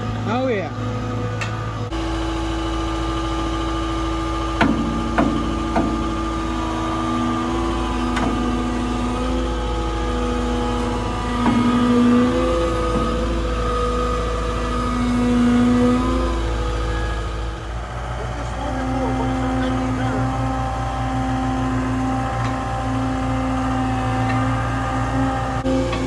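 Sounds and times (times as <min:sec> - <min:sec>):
heavy-equipment engine running: 0:00.0 - 0:26.0
sharp knocks: 0:04.6 - 0:06.4, 0:08.1 - 0:08.7.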